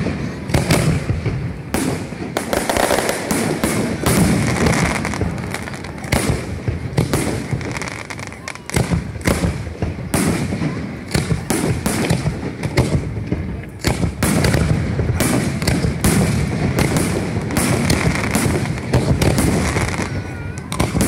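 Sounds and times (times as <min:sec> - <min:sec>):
firework shells bursting: 0:00.0 - 0:21.0
fireworks crackling: 0:00.0 - 0:21.0.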